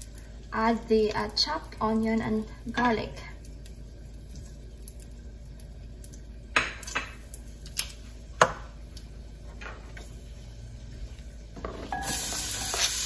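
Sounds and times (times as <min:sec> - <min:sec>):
kitchenware clinking: 0:11.6 - 0:12.9.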